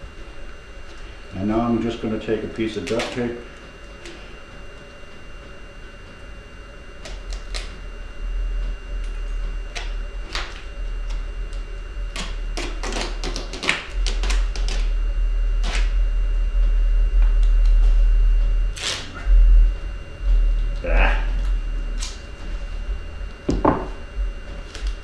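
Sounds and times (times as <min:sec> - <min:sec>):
low hum: 0:03.3 - 0:25.0
duct tape ripping: 0:07.0 - 0:07.8, 0:09.7 - 0:15.0, 0:15.6 - 0:16.0, 0:18.7 - 0:19.3, 0:21.4 - 0:22.2.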